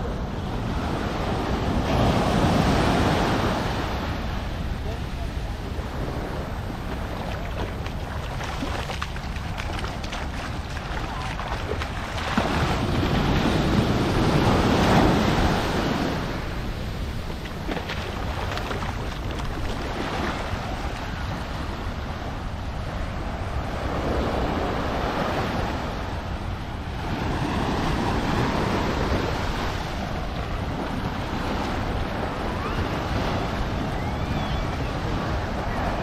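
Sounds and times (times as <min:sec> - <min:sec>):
waves washing onto beach: 0:00.0 - 0:36.0
wind rumbling on microphone: 0:00.0 - 0:36.0.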